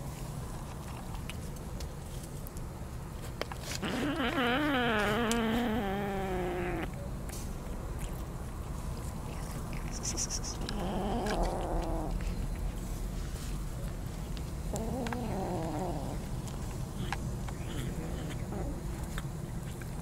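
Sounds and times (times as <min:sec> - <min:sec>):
chewing clicks: 0:00.5 - 0:01.9, 0:06.8 - 0:12.8, 0:13.8 - 0:20.0.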